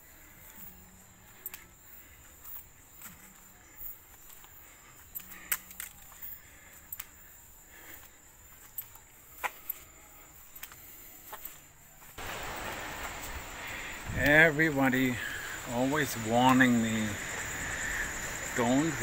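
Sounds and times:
loud even hiss: 12.2s - 19.0s.

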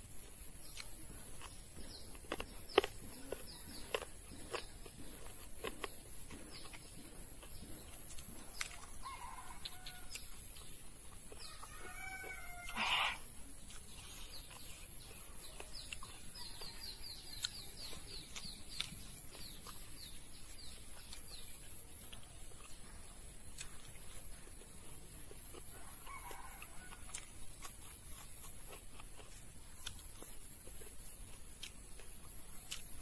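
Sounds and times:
chickens clucking: 0.2s - 30.6s.

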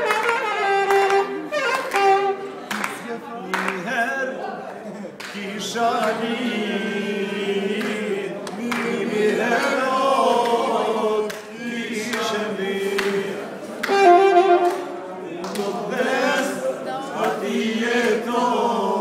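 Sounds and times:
men singing together: 5.3s - 14.5s, 15.6s - 19.0s.

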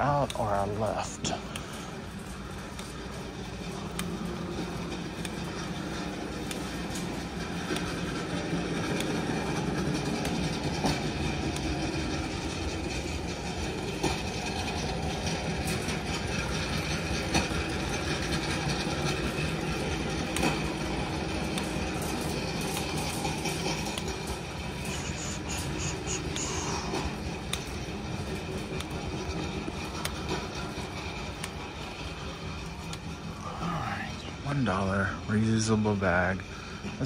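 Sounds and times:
shopping cart rolling on concrete: 0.0s - 37.0s.

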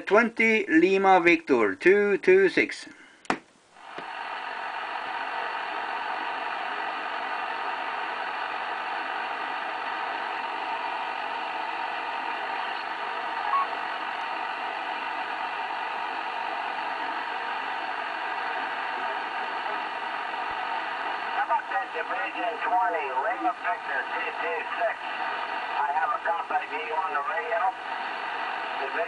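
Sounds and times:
radio static hiss: 11.7s - 29.0s.

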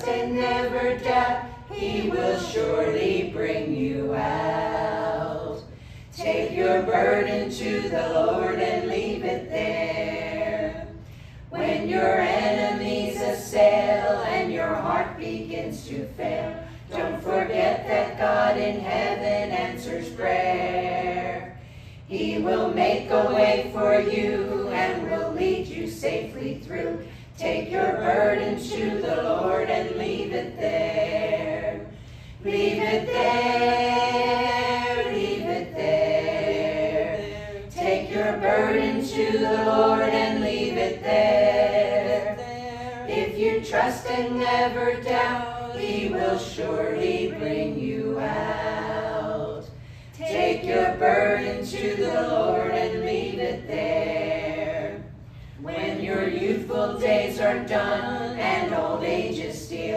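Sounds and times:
group singing a hymn: 0.0s - 59.9s.

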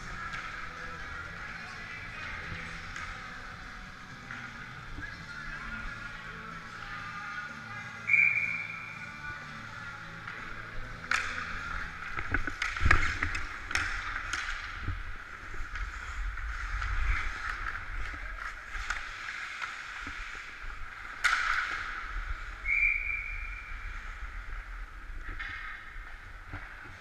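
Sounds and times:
hockey sticks and puck clacking: 0.0s - 27.0s.

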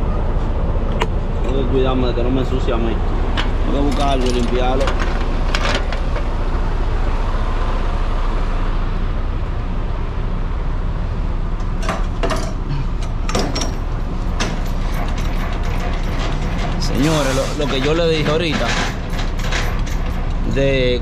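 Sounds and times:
diesel truck engine idling: 0.0s - 19.4s
sharp clicks and knocks: 11.6s - 17.0s, 17.6s - 20.4s.

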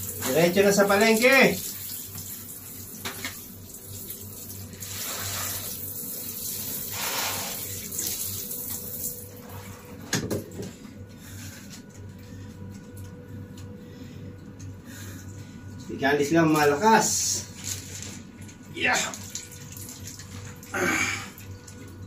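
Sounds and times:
shower spray on fish: 0.0s - 9.7s.

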